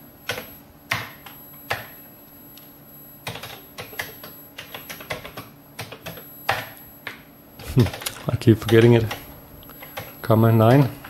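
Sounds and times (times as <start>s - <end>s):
computer keyboard keystrokes: 3.2s - 7.2s, 7.8s - 10.2s.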